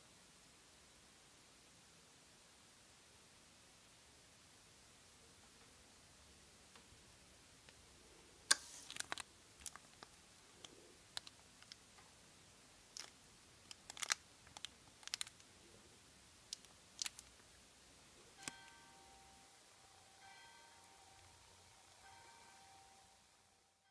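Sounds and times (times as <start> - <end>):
plastic wrapper crinkling: 8.5 - 10.2, 11.1 - 11.8, 12.9 - 15.5, 16.5 - 17.4.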